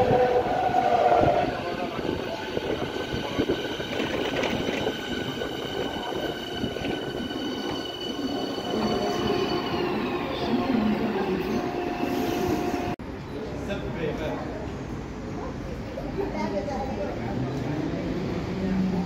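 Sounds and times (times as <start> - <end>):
high whining train tones: 0.0 - 13.0
electric train passing: 0.0 - 13.6.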